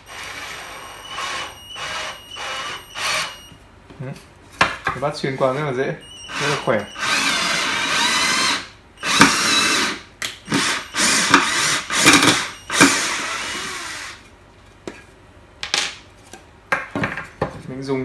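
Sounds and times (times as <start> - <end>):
cordless drill driving screw into wood: 6.3 - 14.2.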